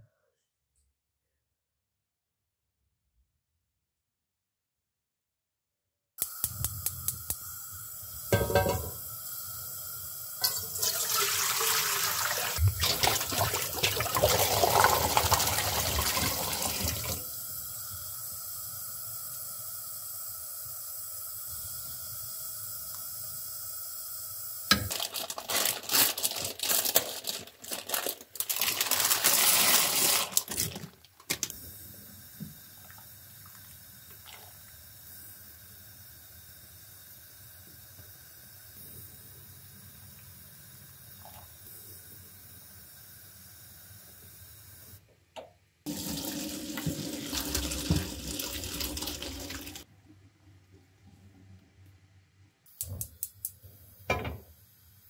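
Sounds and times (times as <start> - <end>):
water pouring into metal pot: 10.4 - 17.2, 32.8 - 34.6, 45.9 - 49.9.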